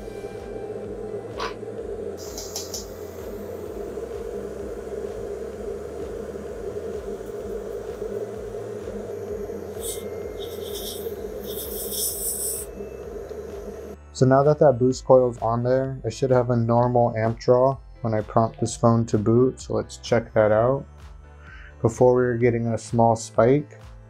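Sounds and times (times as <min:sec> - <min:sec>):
hot-air station blowing: 0:00.0 - 0:14.0.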